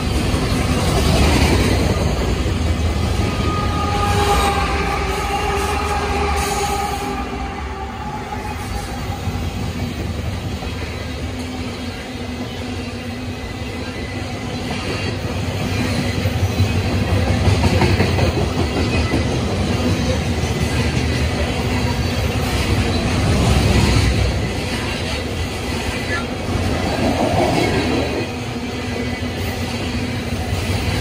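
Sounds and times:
freight train rolling past: 0:00.0 - 0:31.0
steel wheels clattering on rails: 0:08.6 - 0:31.0.

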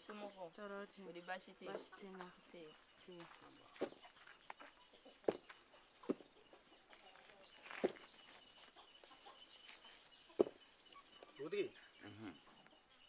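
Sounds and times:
chicken clucking: 0:03.2 - 0:13.0.

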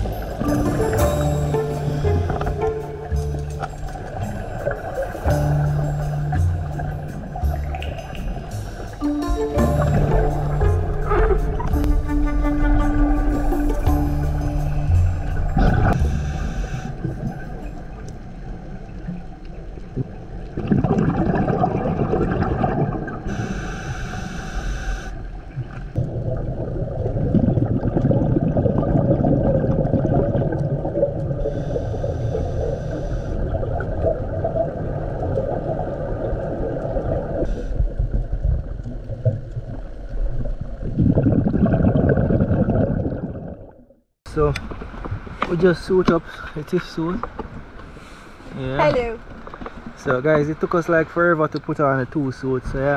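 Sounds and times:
breath hissing through regulator: 0:14.6 - 0:17.5, 0:23.3 - 0:25.2, 0:31.4 - 0:33.6
regulator bubbles gurgling: 0:15.2 - 0:23.6, 0:25.5 - 0:44.6.

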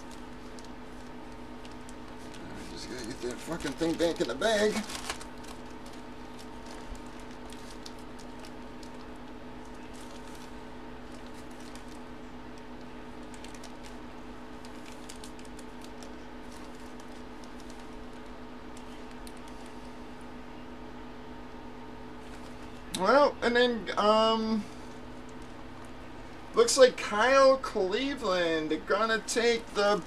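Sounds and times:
low electrical hum: 0:00.0 - 0:30.0.

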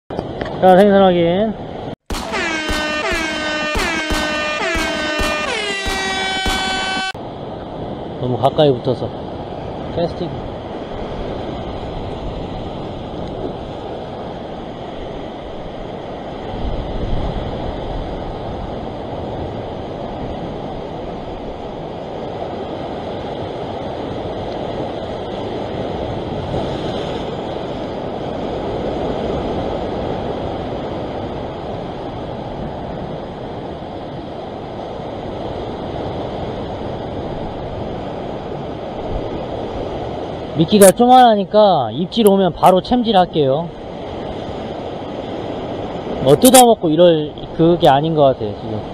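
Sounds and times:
wind buffeting microphone: 0:09.0 - 0:40.6.

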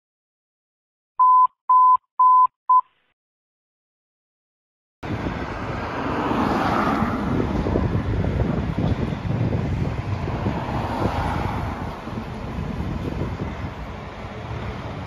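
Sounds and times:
wind on microphone: 0:05.0 - 0:15.0.

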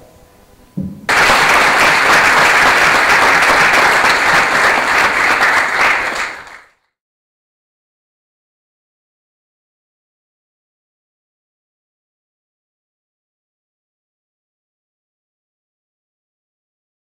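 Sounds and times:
audience applauding: 0:01.1 - 0:06.8.

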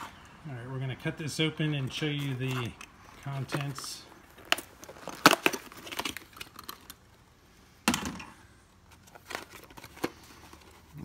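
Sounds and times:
cardboard box crack: 0:03.5 - 0:07.0.

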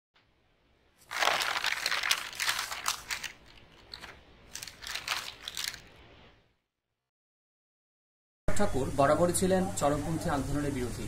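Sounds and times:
paper rustling and crinkling: 0:01.0 - 0:06.2.

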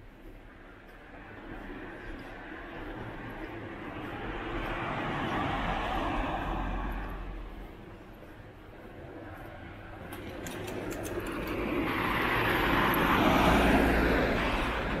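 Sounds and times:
vehicle passing close by: 0:01.6 - 0:07.6, 0:10.1 - 0:15.0.

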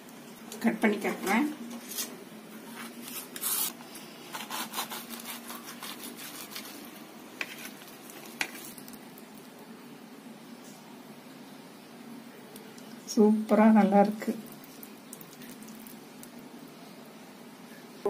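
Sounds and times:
knife scraping through food: 0:02.8 - 0:08.8.

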